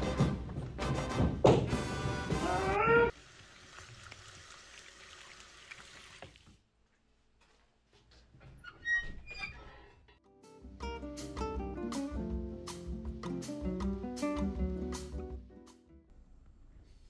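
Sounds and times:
music: 0.0s - 3.1s, 10.2s - 16.1s
tap water running into sink: 3.1s - 6.5s.

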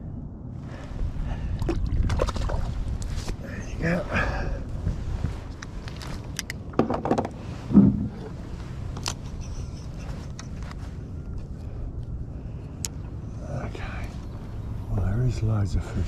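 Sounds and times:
wind rumble on microphone: 0.0s - 16.0s
clicks and knocks in a kayak: 5.9s - 8.2s.

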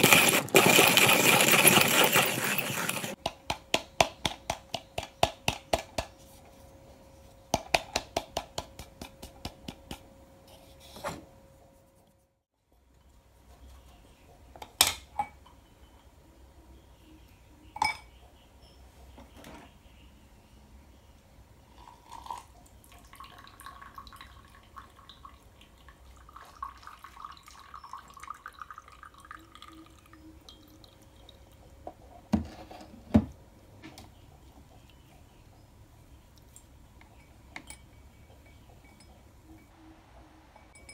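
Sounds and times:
liquid trickling into a mug: 21.7s - 31.7s.

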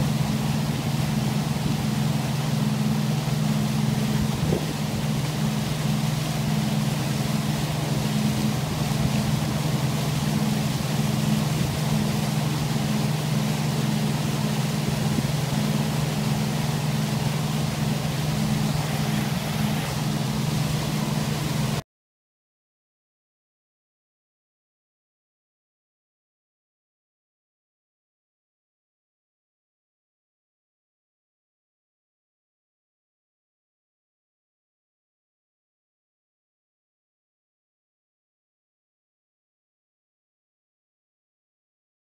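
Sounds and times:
motorboat engine drone: 0.0s - 21.8s.

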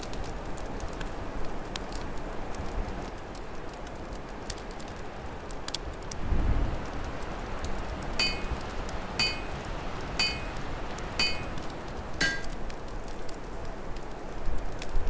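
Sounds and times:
fire crackling: 0.0s - 15.0s
ringing metallic clinks: 8.2s - 10.6s, 11.2s - 11.6s, 12.2s - 12.5s.

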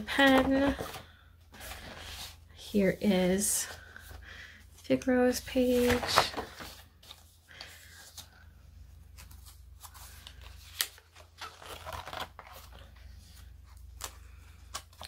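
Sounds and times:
paper pages rustling: 0.0s - 2.4s, 5.6s - 8.4s, 9.0s - 15.0s.

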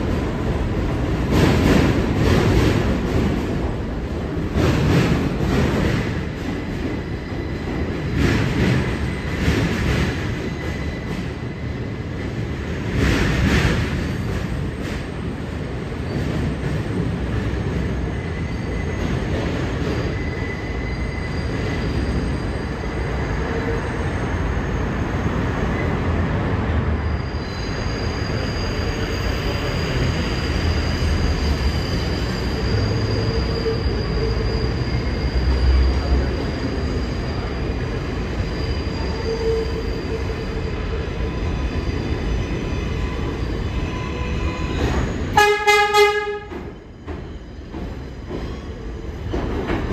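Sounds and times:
train wheels rumbling on steel rail: 0.0s - 49.9s.

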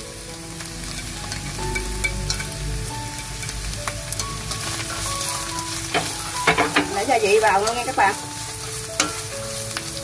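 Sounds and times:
vegetables sizzling in a wok: 0.0s - 10.0s
chopsticks clicking on a pan: 3.4s - 10.0s.

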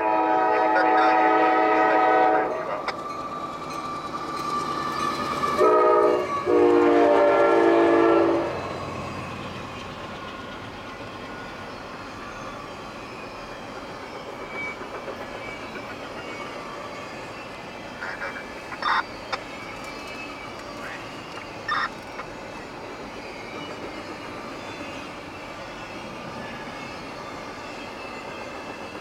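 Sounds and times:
locomotive air horn blasts: 0.0s - 2.7s, 5.6s - 8.6s
train wheels rolling over crossing: 2.9s - 7.2s, 7.8s - 29.0s.

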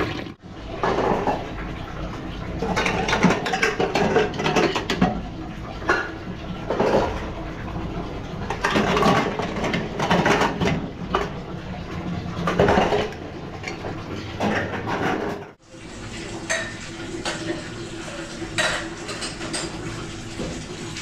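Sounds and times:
dishes and pots clattering: 0.7s - 1.7s, 2.6s - 5.2s, 5.8s - 7.4s, 8.4s - 11.4s, 12.4s - 15.6s, 16.3s - 21.0s.

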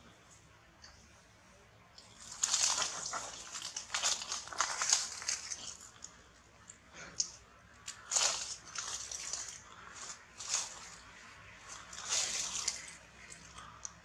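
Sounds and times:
leaves and twigs crackling: 2.0s - 14.0s.

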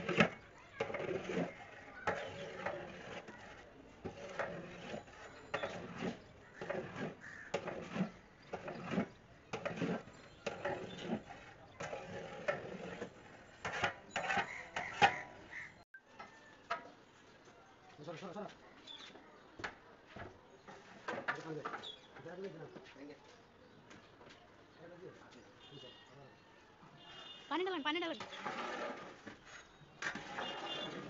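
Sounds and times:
metal ladle scraping pot: 0.0s - 15.8s, 28.1s - 31.0s.

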